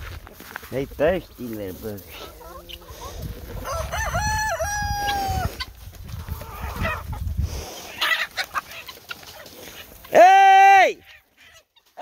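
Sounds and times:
chickens clucking: 0.2s - 10.2s, 11.0s - 12.0s
rooster crowing: 2.5s - 5.6s.

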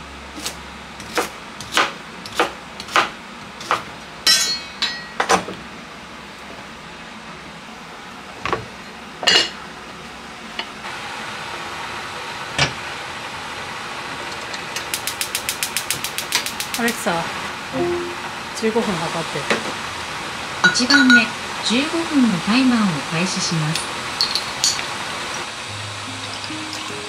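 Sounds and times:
steady hiss: 14.8s - 19.2s.

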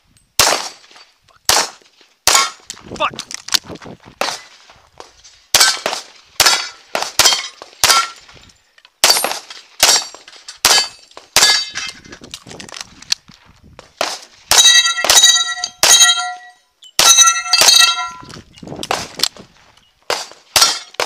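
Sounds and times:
pistol shots: 0.4s - 0.9s, 1.5s - 2.7s, 5.5s - 8.2s, 9.0s - 11.8s, 20.1s - 21.0s
steel plate ringing: 14.5s - 18.3s.

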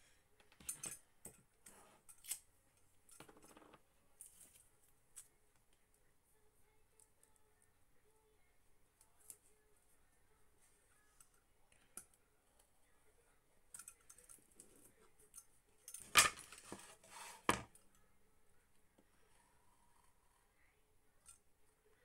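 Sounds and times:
rustling scrape: 16.4s - 17.6s.

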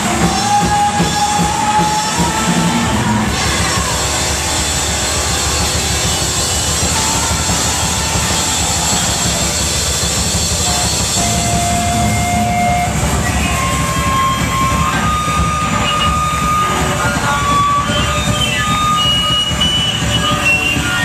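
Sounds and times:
distorted live rock band: 0.0s - 21.0s
electric guitar feedback whine: 0.0s - 21.0s.

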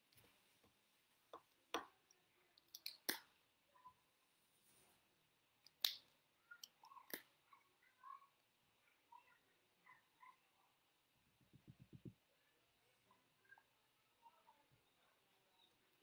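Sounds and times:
marker caps clicking: 1.4s - 3.3s, 5.6s - 7.3s.

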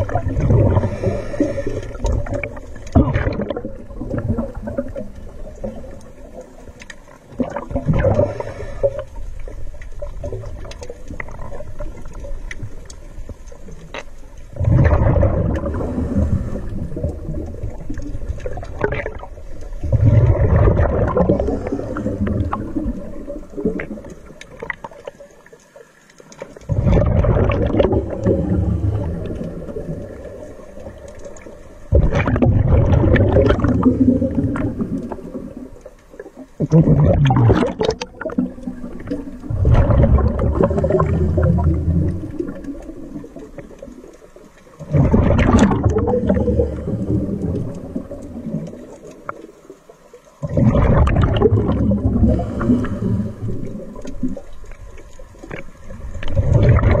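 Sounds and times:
underwater exhaled bubbles rushing: 0.0s - 25.7s, 26.3s - 57.0s.

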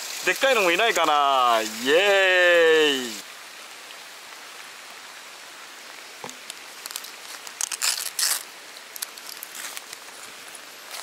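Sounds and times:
rain pattering: 0.0s - 11.0s
rain gear crinkling and rustling: 6.2s - 11.0s
zippered bag opened: 7.6s - 8.4s.

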